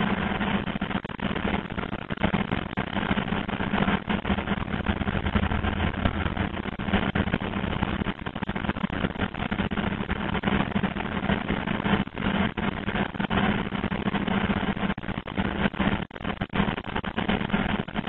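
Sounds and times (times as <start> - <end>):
machine low hum: 3.3 - 8.6.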